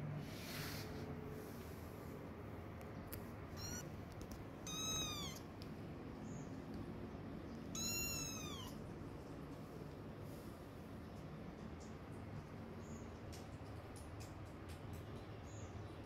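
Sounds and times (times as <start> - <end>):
kitten meowing: 3.6 - 3.9, 4.6 - 5.5, 7.7 - 8.8.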